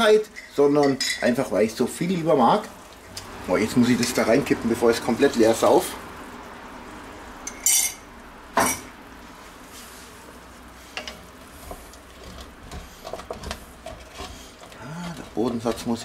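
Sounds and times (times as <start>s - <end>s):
wooden spatula stirring in pot: 9.2s - 16.0s.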